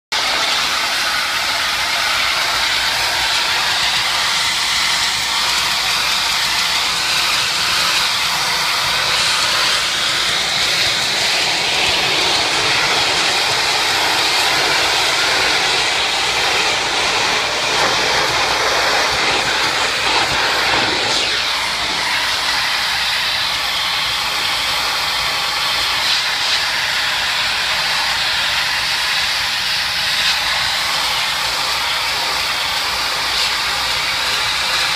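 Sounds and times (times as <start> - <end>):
pressure washer spraying tiles: 0.1 - 34.9.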